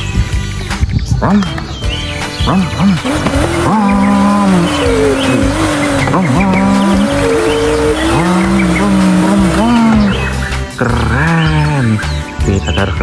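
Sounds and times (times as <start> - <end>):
tyres squealing: 2.4 - 10.8
race car engine notes: 2.4 - 11.0.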